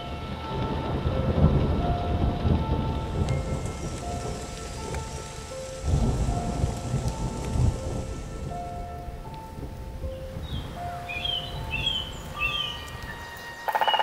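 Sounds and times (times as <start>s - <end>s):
low rumbles of thunder: 0.0s - 14.0s
rain falling: 0.0s - 14.0s
faint drip ticks: 3.2s - 5.2s.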